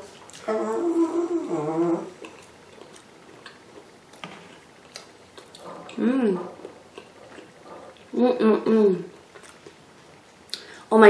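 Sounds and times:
chewing food: 0:02.2 - 0:08.3, 0:09.1 - 0:10.6.

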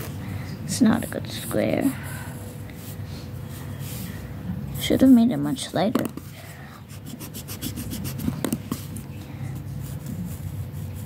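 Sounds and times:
pencil scratching on paper: 0:06.9 - 0:09.0, 0:09.8 - 0:11.0.

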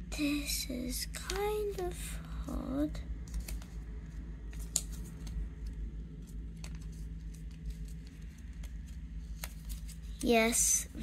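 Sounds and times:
paper crinkling and crackling: 0:03.2 - 0:11.0.

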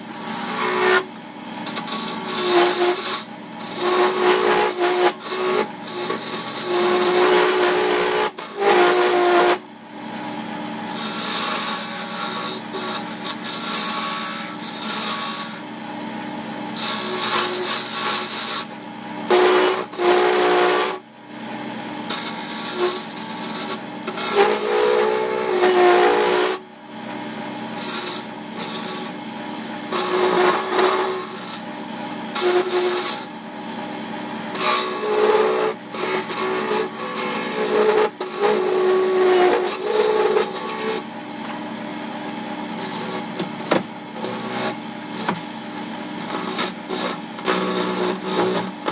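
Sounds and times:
turning tool cutting wood: 0:00.0 - 0:09.6, 0:10.8 - 0:15.7, 0:16.8 - 0:21.0, 0:21.9 - 0:26.6, 0:27.6 - 0:29.2, 0:29.8 - 0:33.4, 0:34.4 - 0:41.6, 0:42.3 - 0:48.9
lathe motor hum: 0:34.3 - 0:48.9.

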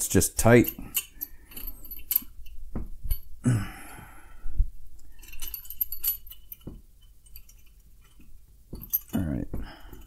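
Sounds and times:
metal parts clicking and knocking: 0:00.4 - 0:03.3, 0:05.0 - 0:10.0.

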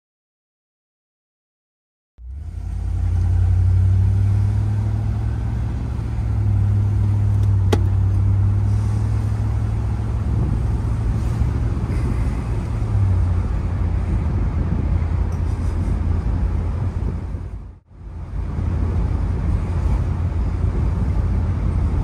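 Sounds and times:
car engine droning while cruising: 0:02.2 - 0:22.0
road noise: 0:02.2 - 0:22.0.

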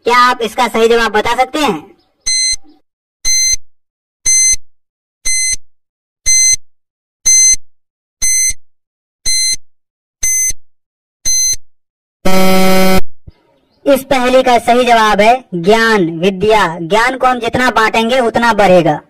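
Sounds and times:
low buzzer: 0:02.3 - 0:02.6, 0:03.3 - 0:03.6, 0:04.3 - 0:04.6, 0:05.3 - 0:05.6, 0:06.3 - 0:06.6, 0:07.3 - 0:07.6, 0:08.2 - 0:08.6, 0:09.3 - 0:09.6, 0:10.2 - 0:10.6, 0:11.3 - 0:11.6, 0:12.2 - 0:13.1
short high electronic beeps: 0:02.3 - 0:02.7, 0:09.3 - 0:09.6, 0:11.3 - 0:11.6.

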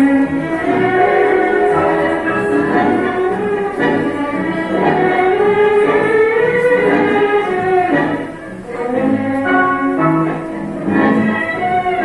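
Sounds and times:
tango orchestra with violins: 0:00.0 - 0:12.0.

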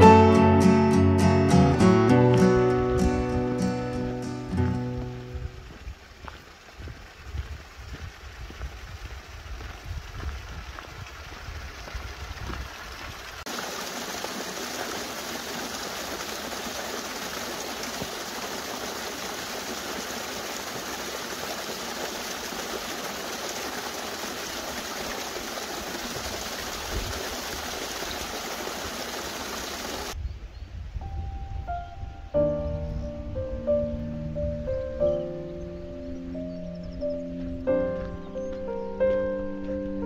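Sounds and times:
wind rumble on microphone: 0:04.9 - 0:13.4, 0:26.6 - 0:27.3, 0:30.2 - 0:35.2
waterfall rushing: 0:13.4 - 0:30.2.

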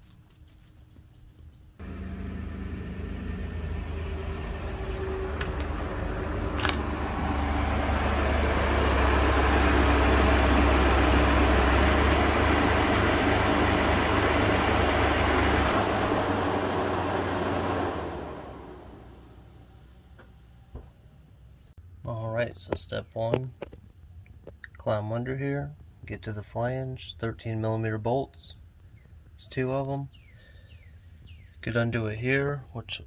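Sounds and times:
truck engine idling: 0:01.8 - 0:21.6.

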